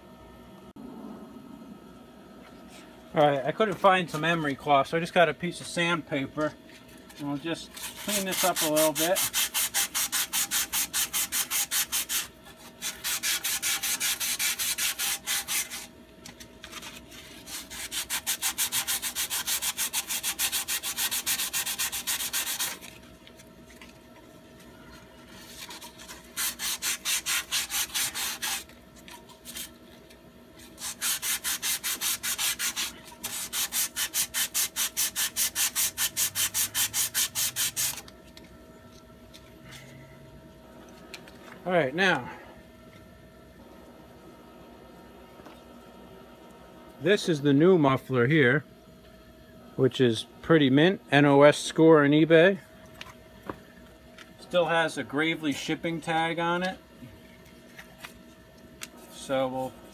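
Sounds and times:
sandpaper rubbing on metal pipe: 0:07.3 - 0:15.9, 0:16.6 - 0:23.0, 0:25.3 - 0:28.7, 0:29.3 - 0:29.7, 0:30.6 - 0:38.0.

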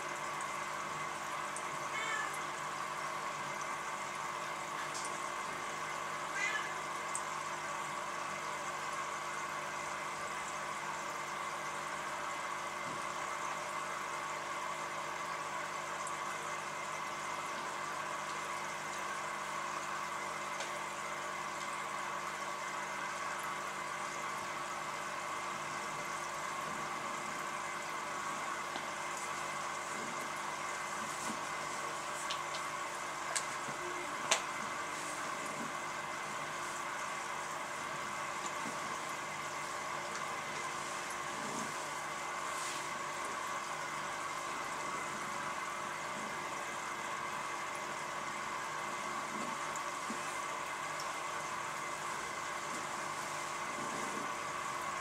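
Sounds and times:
aquarium pump humming: 0:00.0 - 0:55.0
hiss of moving water: 0:40.7 - 0:43.2.

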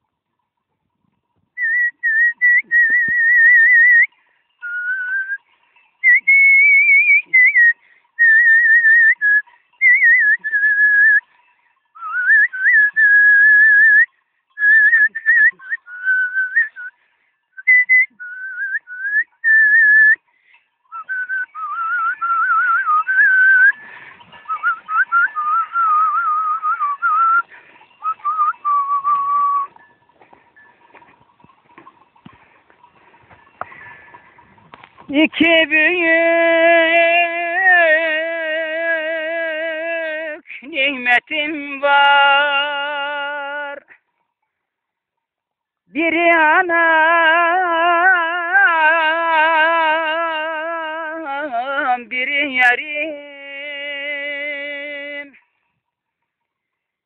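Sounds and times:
man whistling a tune: 0:01.6 - 0:05.4, 0:06.0 - 0:11.2, 0:12.0 - 0:17.0, 0:17.6 - 0:20.2, 0:20.9 - 0:23.9, 0:24.5 - 0:29.8.

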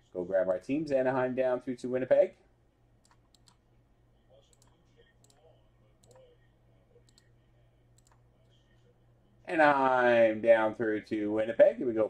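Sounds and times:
low steady hum: 0:00.0 - 0:12.0
computer mouse clicks: 0:03.0 - 0:03.6, 0:04.5 - 0:05.4, 0:06.0 - 0:06.3, 0:07.0 - 0:07.3, 0:08.0 - 0:08.2.

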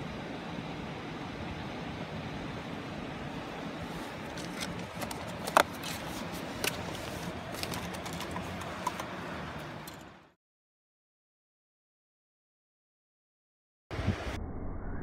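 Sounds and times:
stream water rushing: 0:00.0 - 0:10.0
fishing gear clicks and taps: 0:04.3 - 0:10.1.

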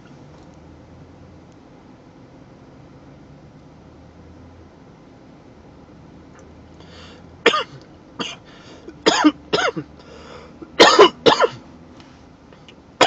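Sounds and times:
breathy exhales: 0:06.8 - 0:07.3, 0:10.0 - 0:10.7
man coughing hard: 0:07.4 - 0:09.9, 0:10.7 - 0:11.6.

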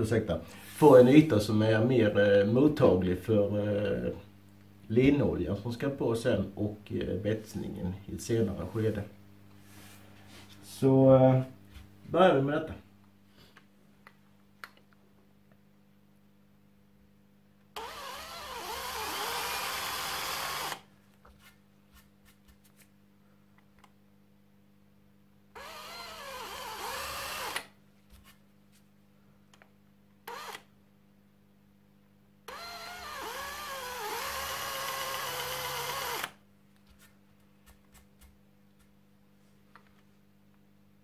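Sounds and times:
cordless drill boring into wood: 0:17.8 - 0:20.8, 0:25.6 - 0:27.7, 0:30.3 - 0:30.7, 0:32.5 - 0:36.4.

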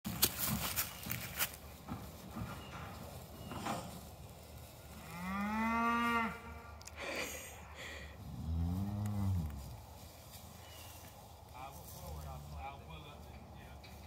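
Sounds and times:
cattle mooing: 0:04.9 - 0:06.7, 0:08.3 - 0:09.6.

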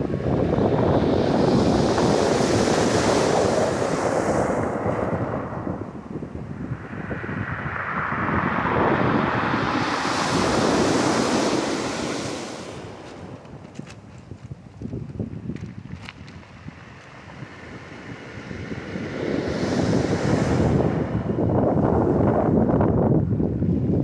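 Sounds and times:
wind buffeting microphone: 0:00.0 - 0:24.0
waves breaking on pebble beach: 0:09.5 - 0:21.0.

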